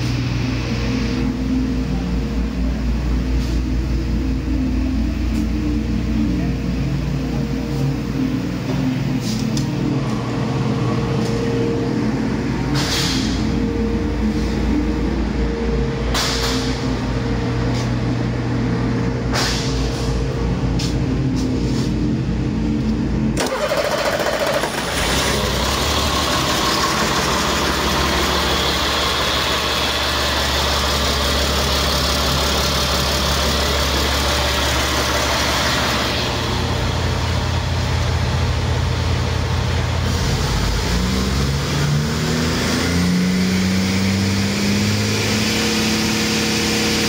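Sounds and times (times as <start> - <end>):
diesel engine idling: 0.0 - 41.7
engine revving up: 23.4 - 31.0, 40.1 - 47.0.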